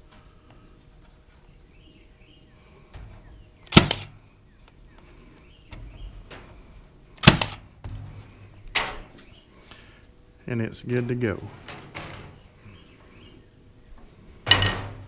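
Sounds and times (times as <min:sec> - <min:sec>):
nailer firing into wood: 0:03.7 - 0:04.1, 0:07.2 - 0:08.0.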